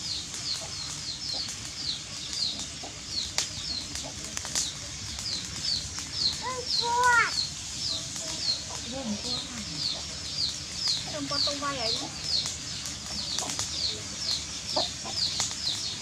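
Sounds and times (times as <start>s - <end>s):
drawn-out bird call: 0.0s - 16.0s
small bird chirping: 0.0s - 16.0s.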